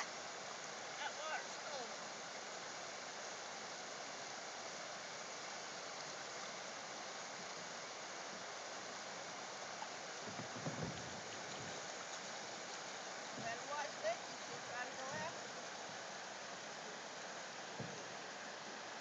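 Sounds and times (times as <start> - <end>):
running water rushing: 0.0 - 19.0.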